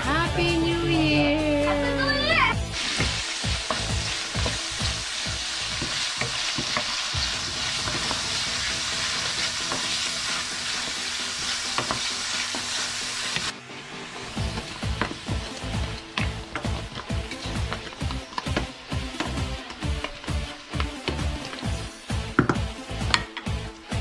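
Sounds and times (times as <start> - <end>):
vegetables sizzling in a pan: 2.7 - 24.0
wooden spatula scraping a pan: 2.8 - 13.5, 14.2 - 21.9.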